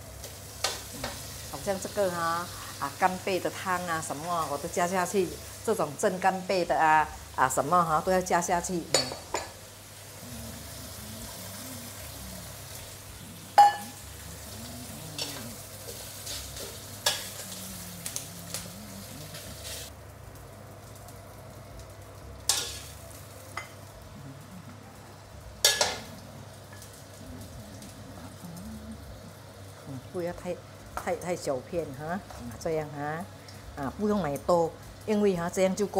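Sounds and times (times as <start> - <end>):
pork sizzling in a wok: 0.0 - 28.4
metal spatula scraping wok: 15.2 - 18.6.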